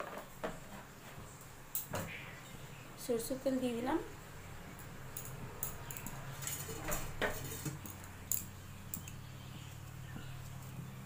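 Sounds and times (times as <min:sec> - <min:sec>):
light clicks and clinks: 0:04.7 - 0:10.7.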